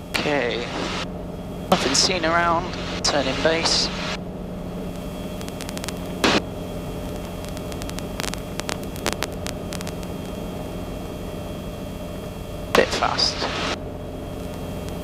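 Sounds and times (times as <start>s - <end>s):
helicopter engine and rotors droning: 0.0s - 15.0s
faint ticks: 4.9s - 6.2s, 7.0s - 10.4s, 14.4s - 15.0s.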